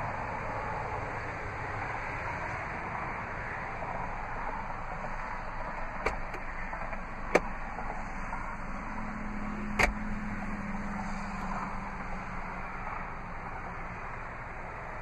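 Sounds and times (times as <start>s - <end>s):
glovebox door snapping shut: 6.0s - 7.5s, 9.8s - 10.0s
glovebox latch clicking: 6.0s - 7.5s, 9.8s - 10.0s.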